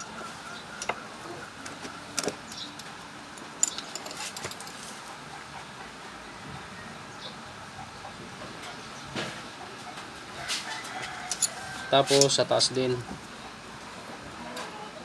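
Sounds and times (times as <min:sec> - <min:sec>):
wrench clinking on metal: 0:02.2 - 0:04.9, 0:11.2 - 0:11.6.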